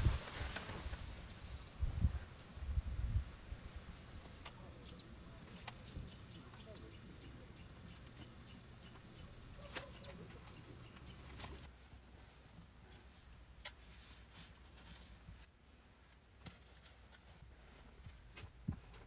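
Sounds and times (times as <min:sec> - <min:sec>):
crickets chirping: 0:00.0 - 0:11.7.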